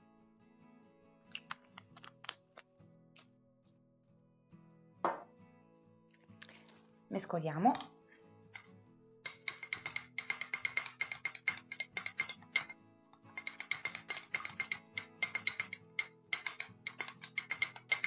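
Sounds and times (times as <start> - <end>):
soft background music: 0.0 - 18.0
utensil clinking in container: 9.3 - 18.0.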